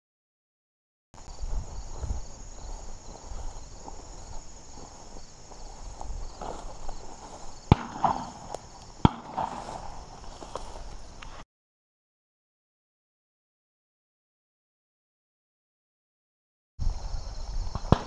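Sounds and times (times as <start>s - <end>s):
footsteps through tall grass: 1.2s - 11.4s
high insect drone: 1.2s - 11.4s, 16.8s - 18.0s.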